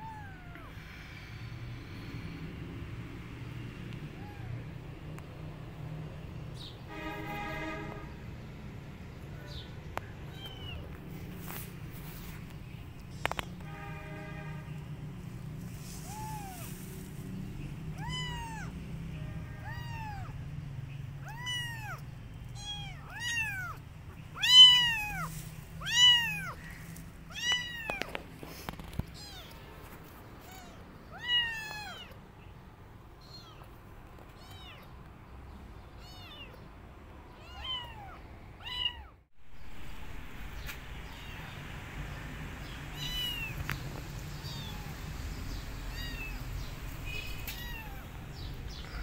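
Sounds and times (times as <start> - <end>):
kittens meowing: 0.0 - 1.0, 4.0 - 4.9, 9.4 - 11.0, 16.0 - 16.8, 17.9 - 18.8, 19.4 - 20.4, 21.2 - 32.2, 33.2 - 34.9, 36.0 - 36.6, 37.3 - 39.2, 41.0 - 41.5, 42.9 - 43.8, 44.4 - 49.0.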